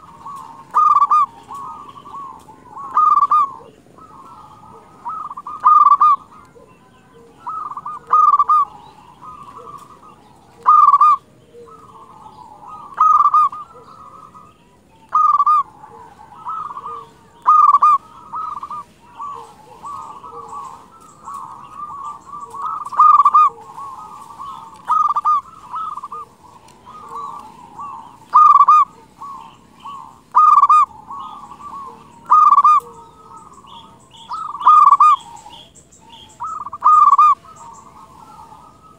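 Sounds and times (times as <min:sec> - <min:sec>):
dove cooing: 0:00.0 - 0:38.9.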